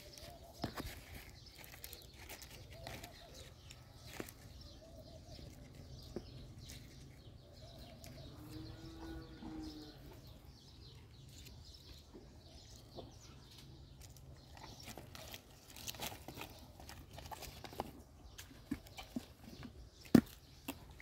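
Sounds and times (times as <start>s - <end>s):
leaves rustling: 0.0s - 4.4s
horse crunching leaves: 0.0s - 4.6s, 14.4s - 18.0s.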